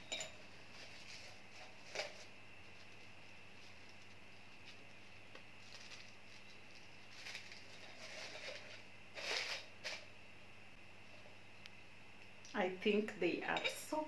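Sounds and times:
artificial flowers rustling: 0.5 - 10.1
stems scraping into ceramic vase: 7.2 - 10.0.

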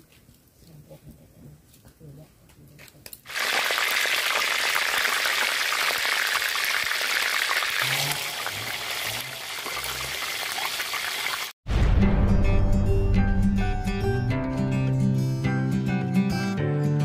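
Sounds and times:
oil sizzling and crackling: 3.2 - 11.6.

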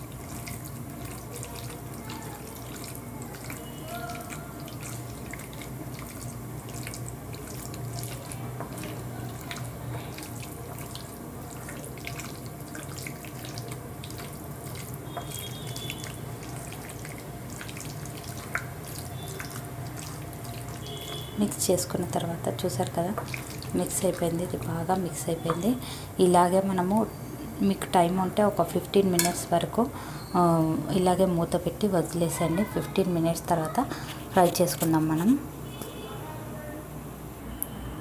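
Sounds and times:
wet squelching of chicken mixing: 0.0 - 26.1.

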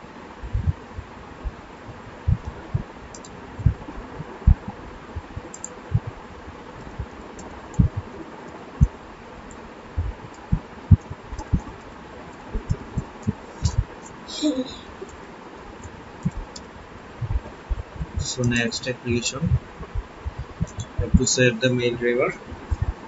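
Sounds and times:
steady background hiss: 0.0 - 23.0
dull low thumps: 0.4 - 2.9, 3.5 - 6.2, 7.8 - 8.1, 10.0 - 11.7, 12.6 - 14.0, 16.2 - 16.6, 17.2 - 18.5, 19.3 - 21.3, 22.5 - 23.0.

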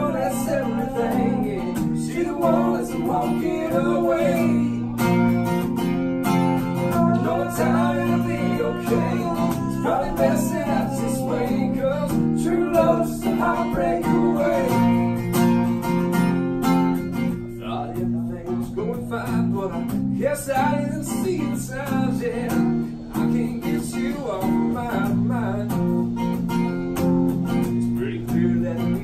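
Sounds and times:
man singing: 0.0 - 5.6, 6.2 - 15.9, 17.5 - 26.3, 27.5 - 29.0
acoustic guitar strumming: 0.0 - 29.0.

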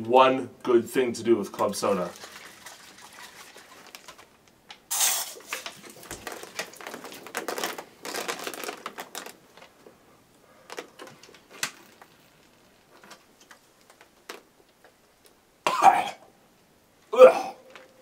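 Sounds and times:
can shaken with fizzing burst: 2.0 - 4.3, 4.9 - 7.2.

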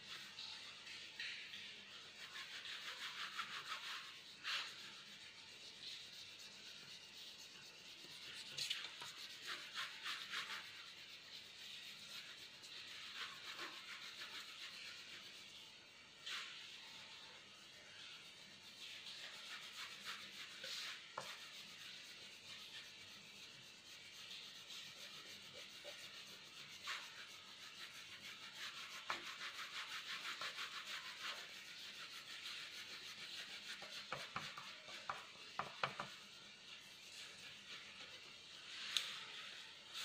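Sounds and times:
pencil shading on paper: 19.3 - 38.3.

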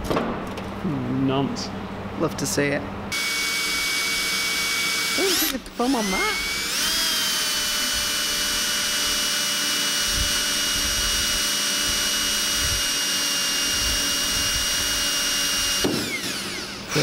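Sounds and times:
cordless drill boring metal: 3.1 - 17.0.

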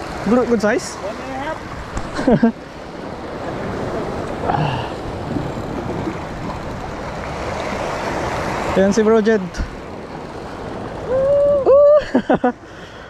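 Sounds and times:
small waves on rocky shore: 0.0 - 12.3
wind buffeting microphone: 2.8 - 8.8.

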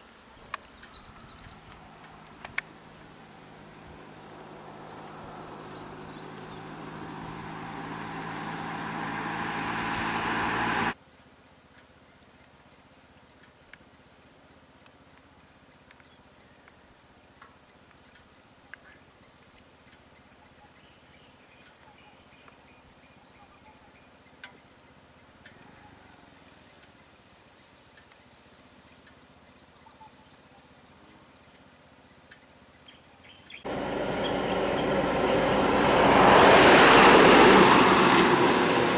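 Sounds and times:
insects droning: 0.0 - 21.7, 22.4 - 38.9
faint rising chirps: 0.9 - 11.0, 33.6 - 38.9
vehicle engine: 1.6 - 11.0, 33.7 - 38.9.

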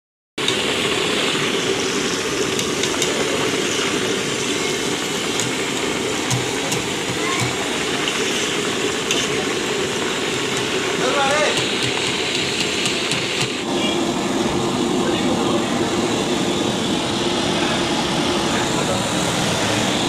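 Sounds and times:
hot oil sizzling in a fryer: 0.4 - 14.4.

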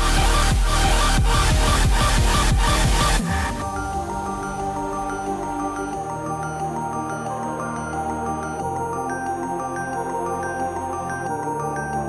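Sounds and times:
electronic synth music: 0.0 - 12.0.

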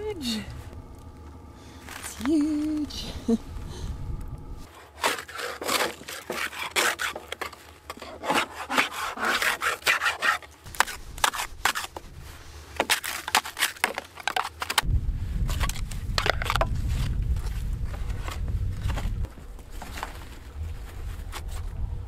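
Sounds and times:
brush scrubbing snow and ice: 4.7 - 14.6.

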